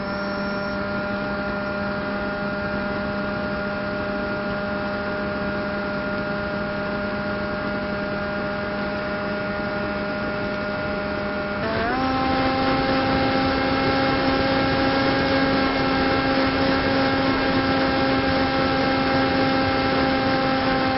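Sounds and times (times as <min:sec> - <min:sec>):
electric motor buzzing: 0:00.0 - 0:01.9, 0:11.6 - 0:20.9.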